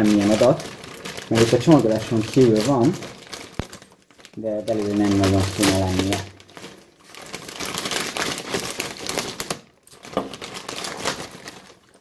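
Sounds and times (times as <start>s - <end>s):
knife slitting plastic bag: 0.0s - 12.0s.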